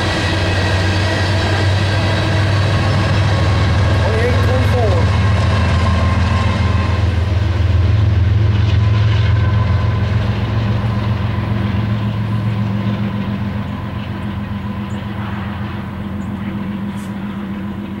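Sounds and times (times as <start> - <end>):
diesel locomotive engine drone: 0.0 - 18.0.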